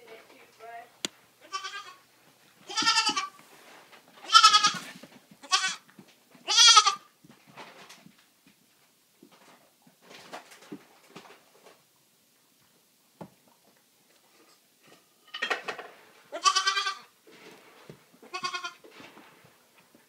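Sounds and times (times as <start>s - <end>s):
baby goats bleating: 1.4s - 2.0s, 2.7s - 3.4s, 4.2s - 7.1s, 16.3s - 17.1s, 18.3s - 18.8s.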